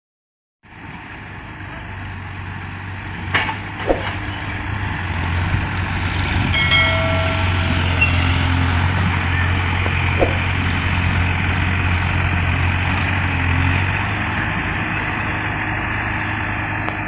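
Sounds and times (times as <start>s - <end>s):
diesel tractor engine hum: 0.7s - 17.0s
sharp clicks: 5.1s - 5.3s, 6.2s - 6.5s
ringing chime: 6.5s - 9.0s
short falling squeals: 6.8s - 8.8s.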